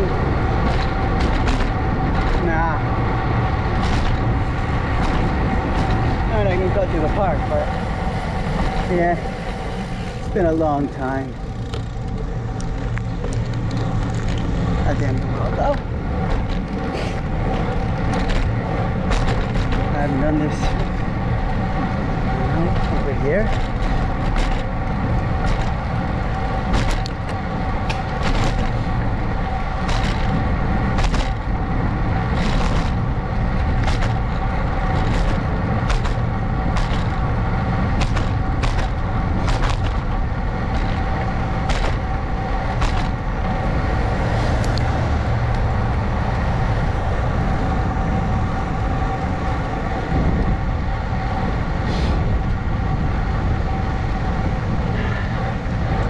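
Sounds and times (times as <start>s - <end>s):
steady whine: 0.0s - 56.0s
wind buffeting microphone: 0.0s - 56.0s.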